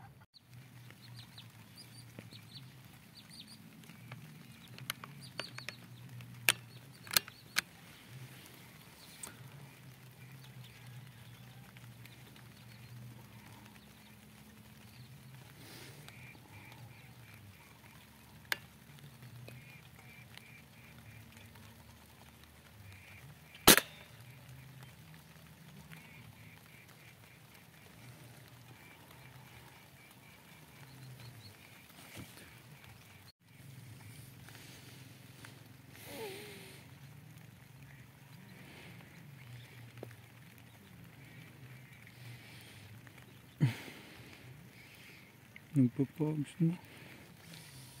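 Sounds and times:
low steady background sound: 0:00.0 - 0:48.0
sharp crack: 0:03.8 - 0:07.9, 0:23.0 - 0:24.6.

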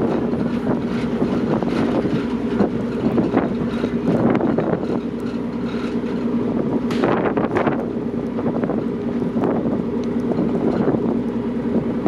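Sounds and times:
ship engines humming: 0:00.0 - 0:12.0
wind buffeting microphone: 0:00.0 - 0:12.0.

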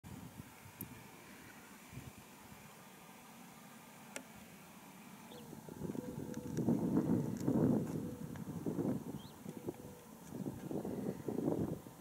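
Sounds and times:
distant jet engines rushing: 0:00.2 - 0:12.0
wind buffeting microphone: 0:05.3 - 0:12.0.

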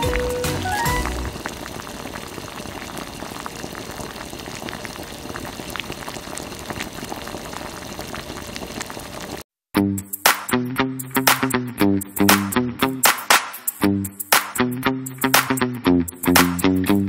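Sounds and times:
water boiling and bubbling: 0:00.0 - 0:09.4.

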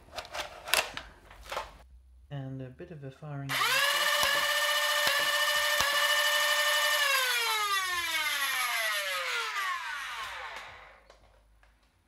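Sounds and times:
flywheel motors whining: 0:03.5 - 0:11.0.

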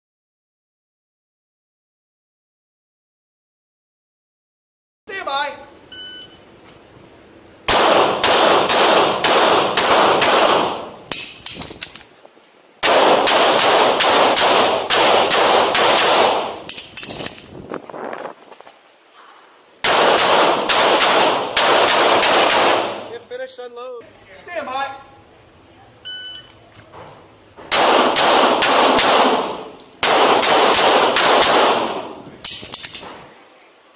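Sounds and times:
handgun shots indoors: 0:07.7 - 0:12.0, 0:12.8 - 0:17.4, 0:19.8 - 0:23.2, 0:27.7 - 0:33.2.

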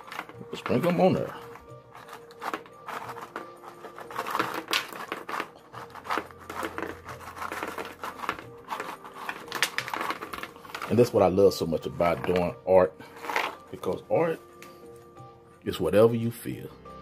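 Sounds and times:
crackers shaken onto board: 0:00.0 - 0:11.2
plastic snack bag crinkling: 0:00.0 - 0:13.9
faint background music: 0:00.0 - 0:17.0.

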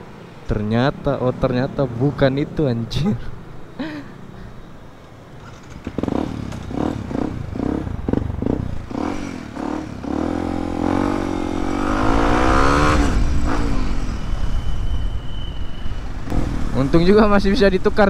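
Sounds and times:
motorcycle engine revving: 0:05.4 - 0:14.3, 0:16.2 - 0:17.0.

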